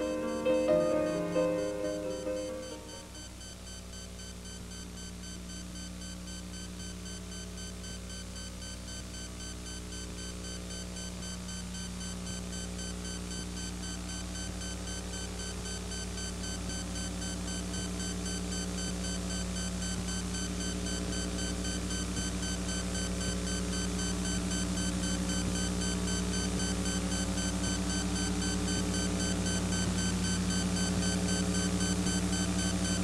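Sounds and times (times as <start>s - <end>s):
synthesizer drone: 0.0s - 3.2s.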